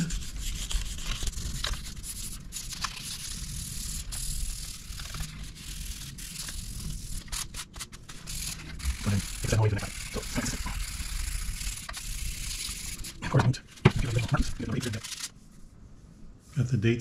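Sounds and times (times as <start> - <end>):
sandpaper rubbing on wood: 0.0 - 7.5, 8.1 - 13.2.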